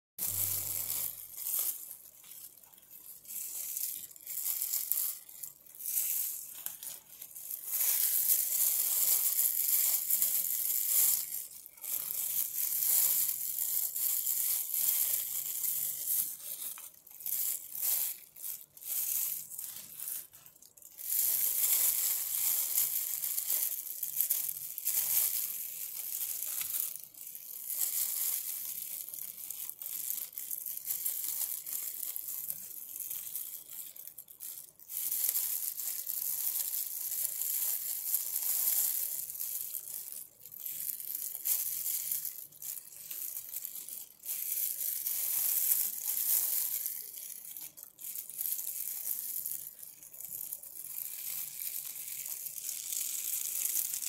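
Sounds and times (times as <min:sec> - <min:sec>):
leaves tearing by hand: 0:00.2 - 0:01.8.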